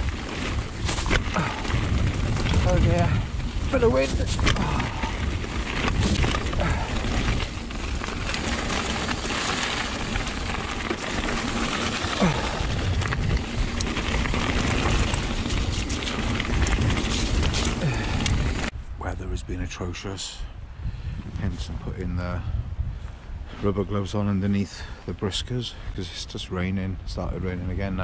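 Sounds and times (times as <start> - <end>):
bike tyres rolling on gravel: 0.0 - 18.8
wind buffeting microphone: 0.0 - 19.6, 20.4 - 24.9.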